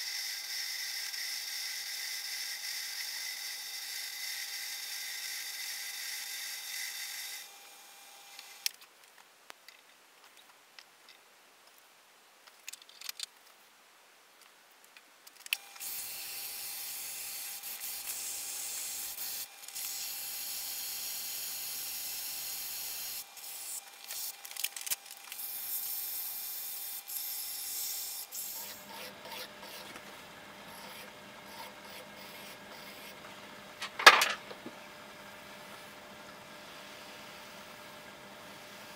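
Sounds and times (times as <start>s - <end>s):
hand file rubbing on metal: 28.4s - 29.9s.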